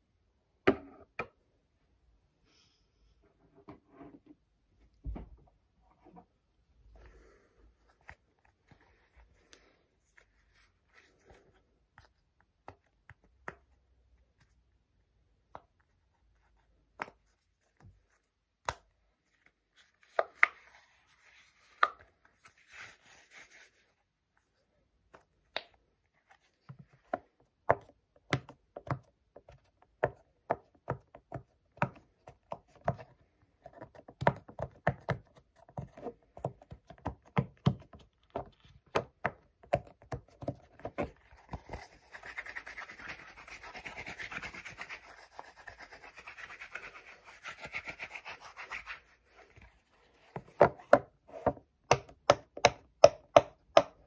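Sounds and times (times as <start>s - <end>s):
scratching and rubbing: 41.2s - 49.8s.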